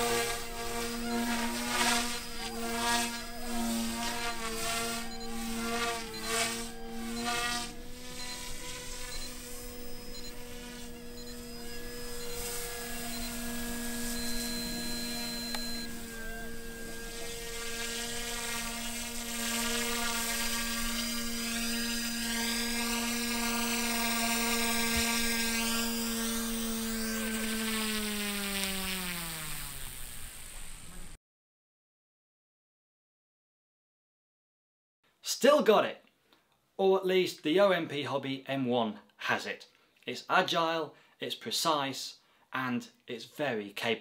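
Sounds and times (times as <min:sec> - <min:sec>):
rc helicopter motor whine: 0:00.0 - 0:31.2
rotor blade hiss: 0:00.0 - 0:31.2.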